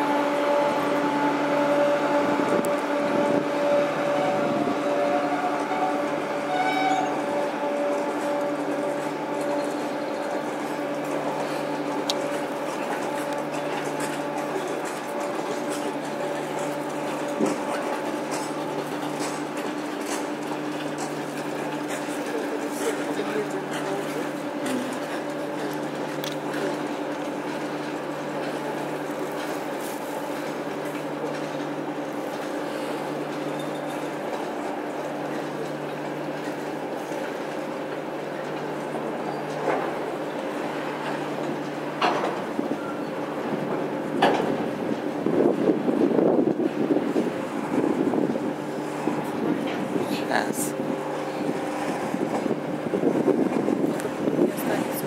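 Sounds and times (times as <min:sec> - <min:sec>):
freight train rolling rumble: 0:00.0 - 0:55.0
train wheels clicking: 0:05.4 - 0:50.0.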